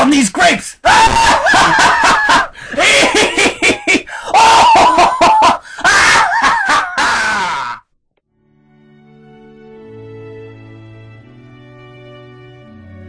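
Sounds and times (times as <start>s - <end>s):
high-pitched laughter: 0.9s - 7.8s.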